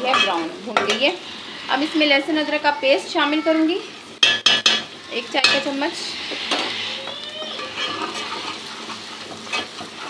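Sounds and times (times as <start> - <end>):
food sizzling in pot: 0.0 - 10.0
spoon knocking on pot: 4.2 - 5.7.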